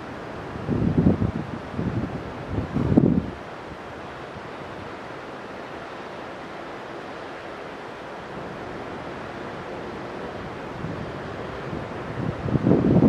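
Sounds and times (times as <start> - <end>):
wind on microphone: 0.0 - 5.2, 8.3 - 13.0.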